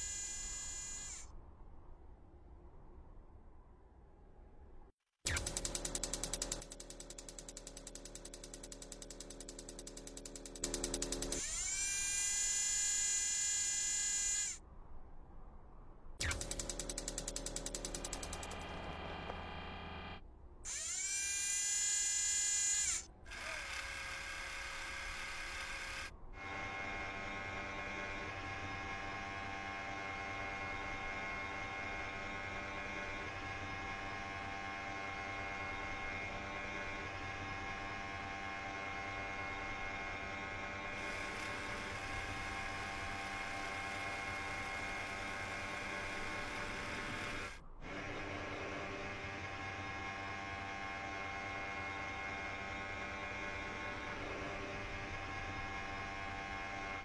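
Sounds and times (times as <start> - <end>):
electric motor whine: 0.0 - 1.3, 5.4 - 14.6, 16.3 - 57.0
steady mechanical hum: 16.2 - 57.0.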